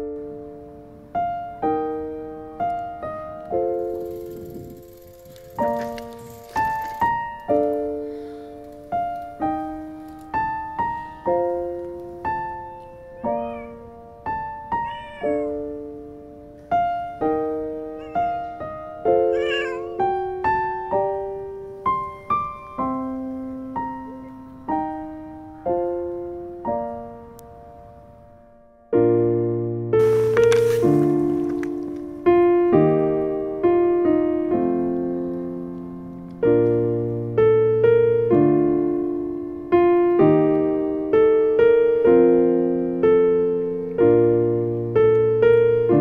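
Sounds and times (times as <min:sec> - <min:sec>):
slow piano music: 0:00.0 - 0:46.0
cat meowing: 0:12.4 - 0:13.9, 0:14.6 - 0:15.7, 0:17.9 - 0:20.0.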